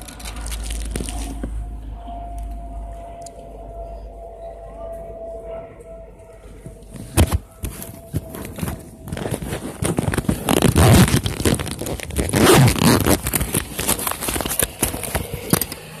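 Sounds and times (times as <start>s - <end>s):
microphone handling rustles: 7.0s - 15.7s.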